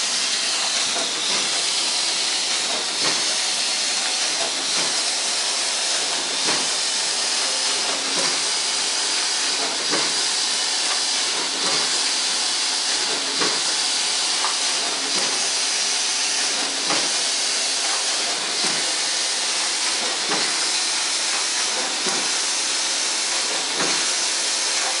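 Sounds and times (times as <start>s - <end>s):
machine hiss: 0.0s - 25.0s.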